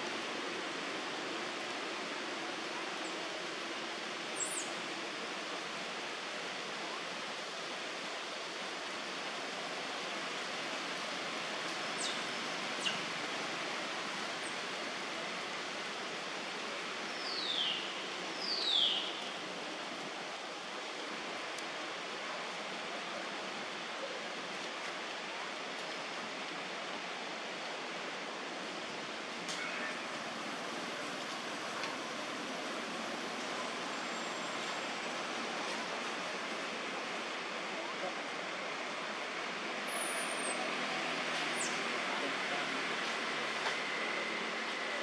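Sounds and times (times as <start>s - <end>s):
steady outdoor hiss: 0.0s - 45.0s.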